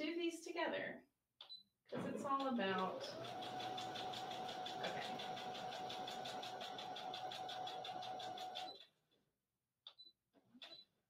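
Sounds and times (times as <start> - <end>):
sewing machine stitching: 2.0 - 8.9.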